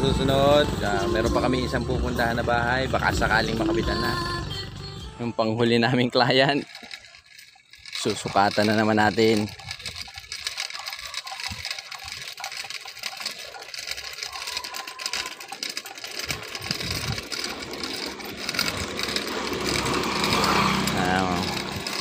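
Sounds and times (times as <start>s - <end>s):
measuring wheel rolling on concrete: 0.0s - 22.0s
steady background noise: 0.0s - 22.0s
counter ticking clicks: 6.2s - 22.0s.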